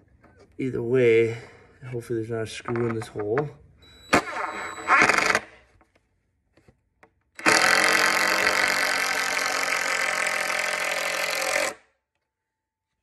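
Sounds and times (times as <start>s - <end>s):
cordless drill driving screw: 4.2s - 5.5s, 7.4s - 11.8s.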